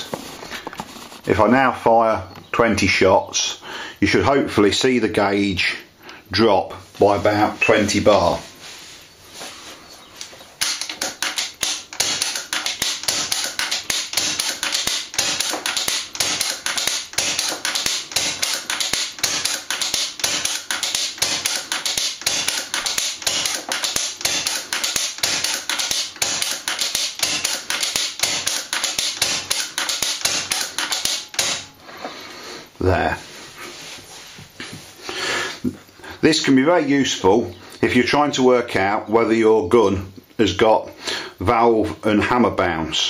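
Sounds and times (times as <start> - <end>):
air rifle shots: 10.6 - 31.7.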